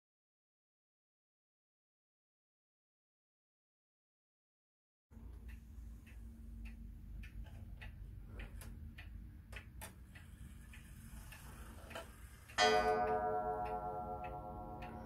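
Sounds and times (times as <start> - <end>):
wall clock ticking: 5.1 - 15.0
clock chime strike ringing: 12.6 - 15.0.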